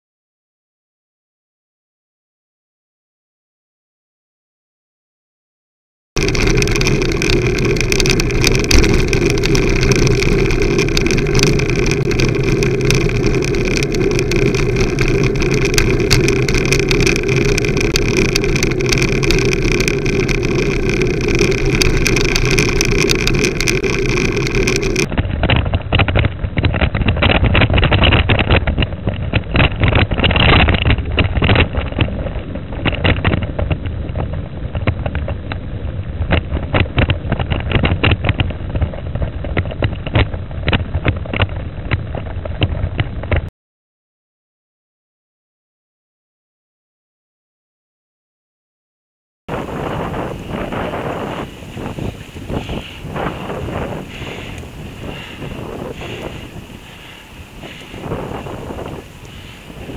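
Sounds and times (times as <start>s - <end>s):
bicycle road noise: 6.2s - 43.5s, 49.5s - 59.9s
wind noise on microphone: 6.2s - 43.5s, 49.5s - 59.9s.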